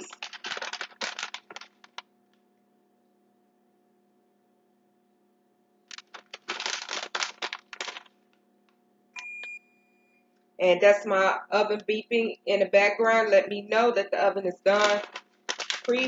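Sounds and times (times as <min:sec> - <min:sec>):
plastic bag crinkling: 0:00.0 - 0:02.1, 0:05.9 - 0:08.2, 0:14.7 - 0:16.0
faint steady hum: 0:00.0 - 0:16.0.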